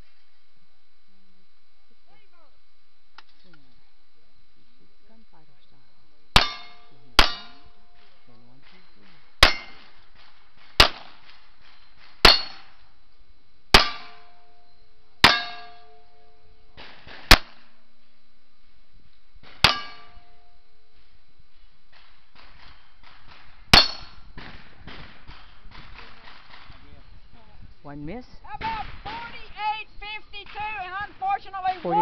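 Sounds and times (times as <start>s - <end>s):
steel plate target ringing: 6.4s - 8.0s, 8.8s - 10.0s, 11.7s - 12.8s, 13.7s - 16.5s, 19.4s - 20.7s, 22.3s - 24.4s.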